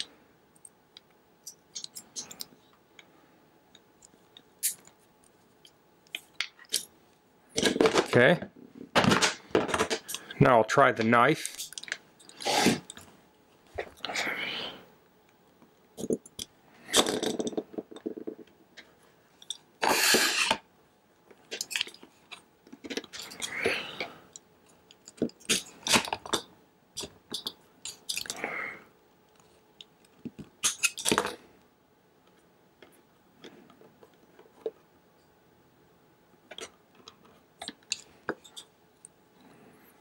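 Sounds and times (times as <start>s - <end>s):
knife cutting and scraping wire: 30.6s - 31.2s.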